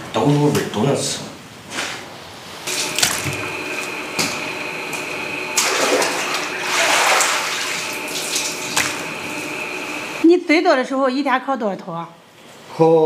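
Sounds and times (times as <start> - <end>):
water running: 2.6 - 10.3.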